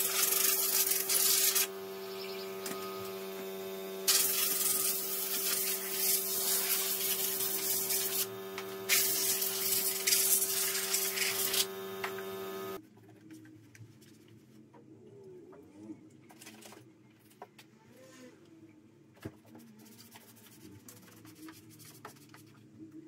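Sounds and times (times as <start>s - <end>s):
compressed air blow gun hissing: 0.0s - 1.7s, 4.1s - 11.7s
cloth rubbing on engine: 0.0s - 12.8s
steady hum: 0.0s - 12.8s.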